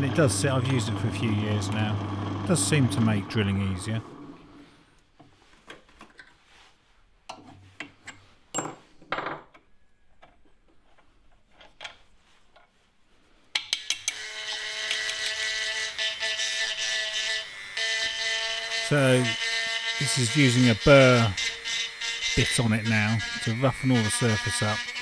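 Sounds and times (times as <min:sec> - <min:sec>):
rotary tool high whine: 0:14.1 - 0:25.0.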